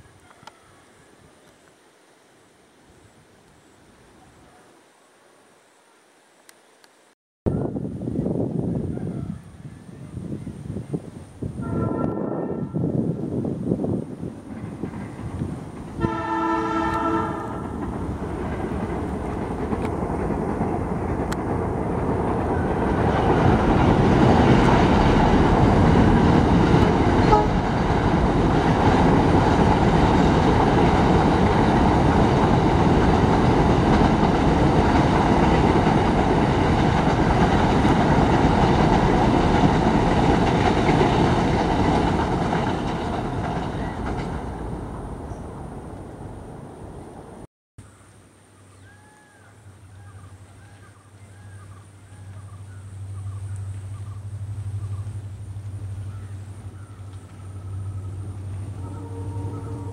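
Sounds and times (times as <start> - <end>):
train rumbling over bridge: 7.5 - 47.5, 49.0 - 59.9
train horn blast: 11.6 - 13.1, 16.0 - 17.8, 27.1 - 27.8, 58.6 - 59.9.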